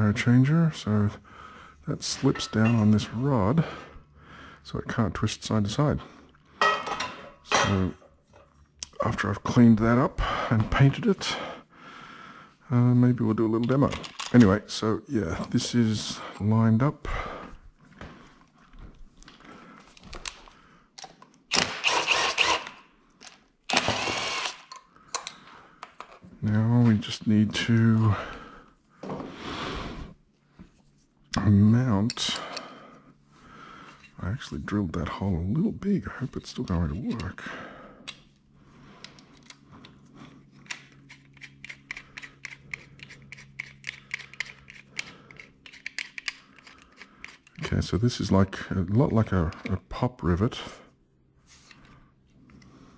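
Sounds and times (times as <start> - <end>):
cordless drill running: 21.6 - 22.8, 23.7 - 24.7
rivet nut tool clicking: 40.7 - 47.6.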